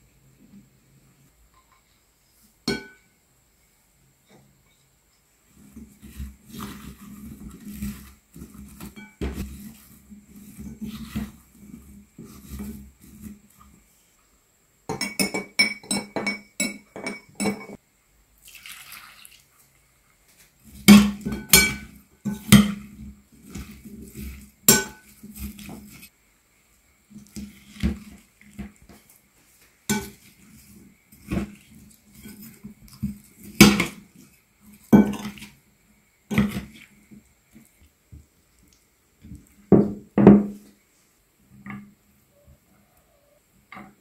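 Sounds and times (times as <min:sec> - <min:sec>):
spatula stirring onions in bowl: 0:05.4 - 0:14.0, 0:20.5 - 0:26.2, 0:26.8 - 0:39.8
liquid trickling: 0:18.4 - 0:19.6.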